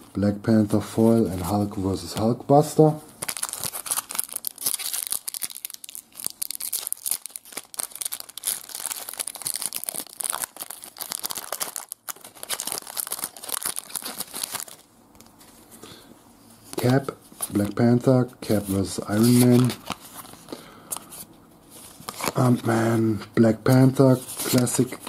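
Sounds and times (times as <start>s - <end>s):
foil wrapper tearing and crinkling: 3.2s - 14.8s.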